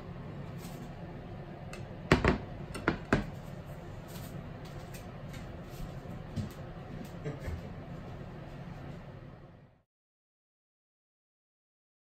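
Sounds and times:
low background hum: 0:00.0 - 0:09.9
plates knocking on countertop: 0:02.1 - 0:03.4.

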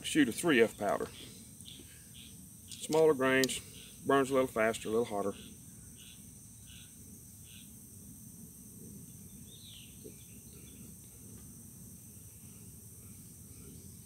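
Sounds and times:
insects droning: 0:00.0 - 0:14.0
bird chirps: 0:01.1 - 0:03.0, 0:05.3 - 0:07.8, 0:09.3 - 0:10.9.

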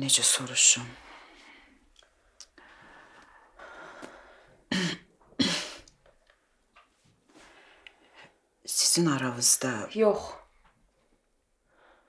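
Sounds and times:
person breathing: 0:01.0 - 0:01.9, 0:02.5 - 0:04.7, 0:07.3 - 0:08.4, 0:11.7 - 0:12.0.

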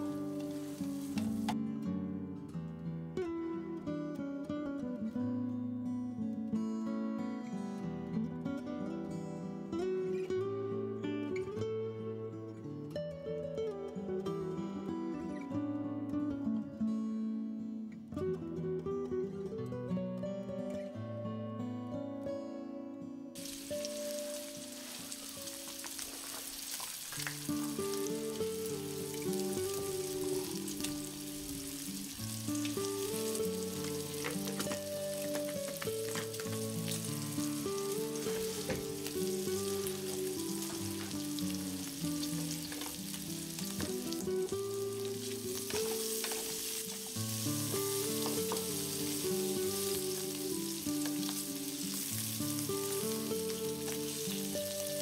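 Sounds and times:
meat sizzling in a pan: 0:00.0 - 0:01.6, 0:23.4 - 0:55.0
instrumental background music: 0:00.0 - 0:01.8, 0:23.3 - 0:55.0.

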